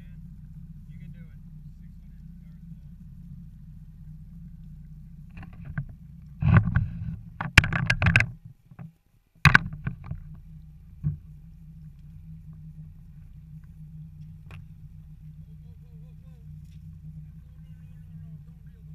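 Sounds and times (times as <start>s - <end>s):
outboard motor droning: 0.0s - 18.9s
sharp knocks: 5.3s - 10.4s.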